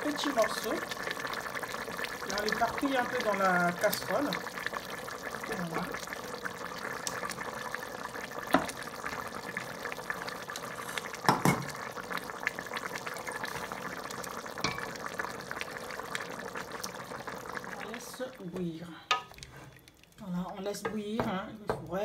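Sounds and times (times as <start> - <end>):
broth boiling and bubbling: 0.0 - 22.0
spoon knocking on metal pot: 11.3 - 11.7.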